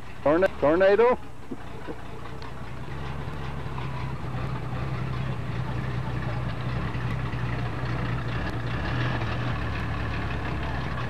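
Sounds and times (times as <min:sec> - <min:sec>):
car engine exhaust rumble: 0:00.0 - 0:11.0.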